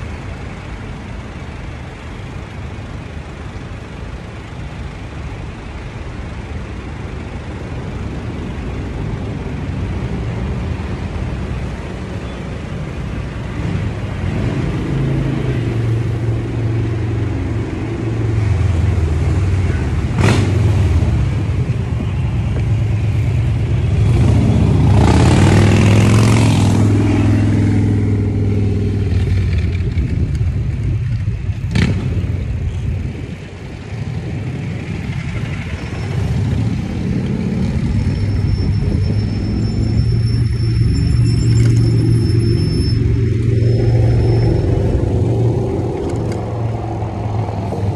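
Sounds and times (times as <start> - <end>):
wind and road noise rumble: 0.0 - 47.9
motor vehicle passing: 23.4 - 30.2.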